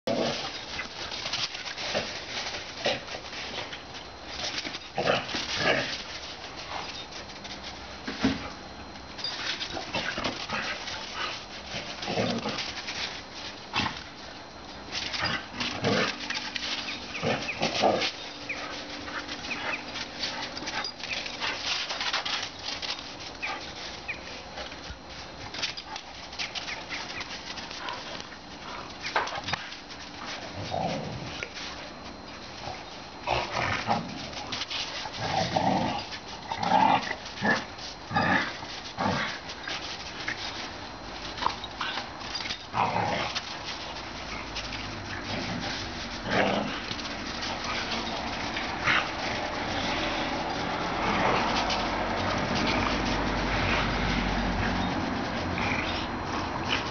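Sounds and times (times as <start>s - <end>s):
dogs vocalising while playing: 14.9s - 56.9s.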